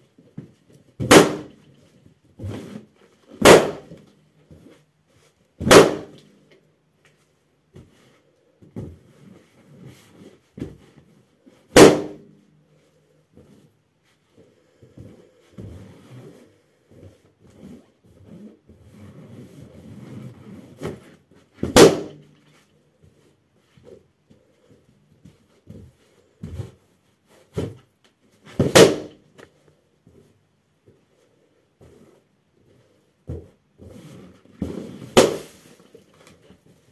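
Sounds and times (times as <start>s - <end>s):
balloon rubber rustling and creaking: 0.0s - 36.9s
balloon popping: 1.0s - 1.6s, 3.4s - 4.0s, 5.6s - 6.2s, 21.6s - 22.2s, 28.6s - 29.2s, 35.0s - 35.7s.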